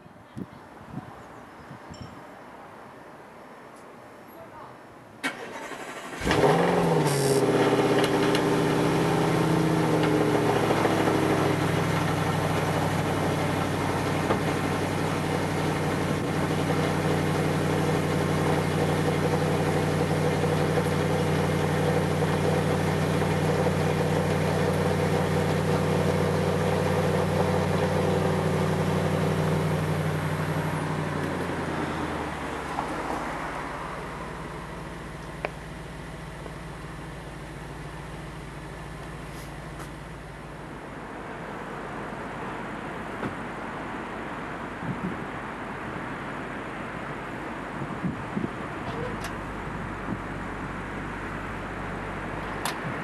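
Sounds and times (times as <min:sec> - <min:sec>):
car engine cold start idling: 0:05.2 - 0:30.8.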